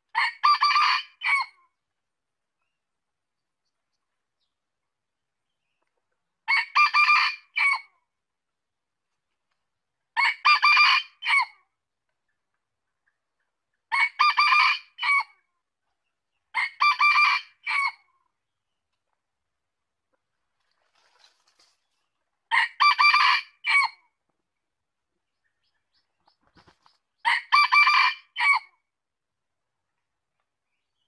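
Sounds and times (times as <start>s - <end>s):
rooster crowing: 22.5s - 23.9s, 27.3s - 28.6s.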